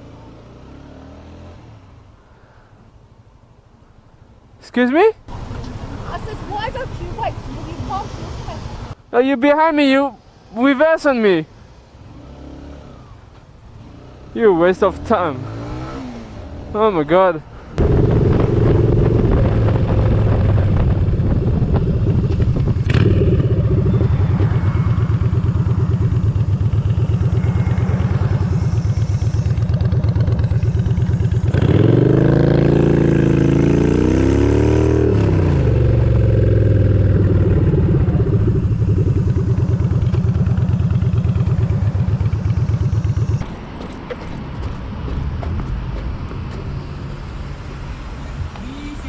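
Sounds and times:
motorcycle engine running: 17.8s - 43.4s.

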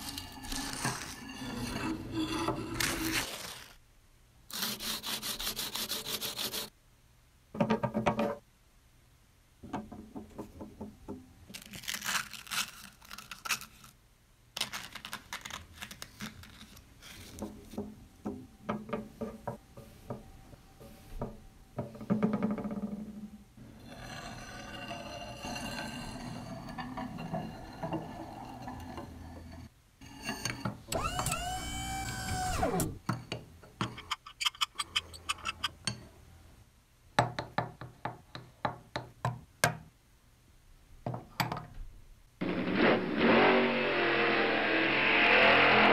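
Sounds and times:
chisel rubbing on sandpaper: 4.5s - 6.7s
sliding pitched tone: 42.4s - 45.9s.

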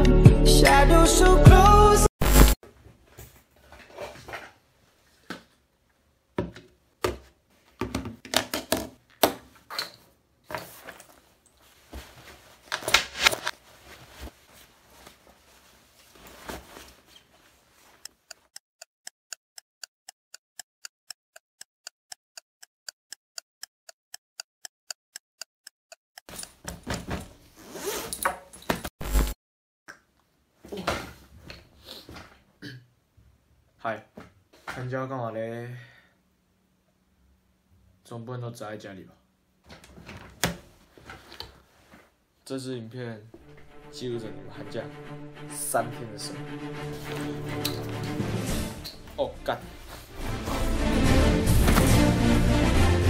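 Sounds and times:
clothes rustling: 9.9s - 18.3s
clock ticking: 18.0s - 26.4s
zipper: 27.6s - 28.2s.

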